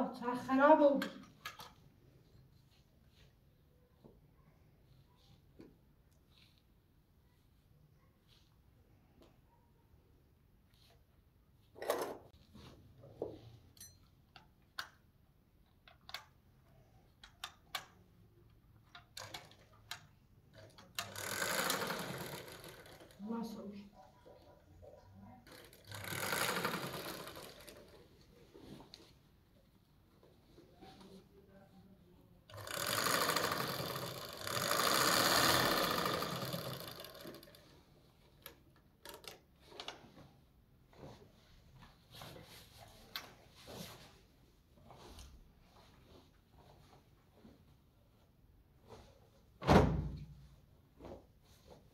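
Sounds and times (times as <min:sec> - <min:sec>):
small machine running fast: 0:21.1 - 0:23.2, 0:25.6 - 0:27.6, 0:32.5 - 0:37.5.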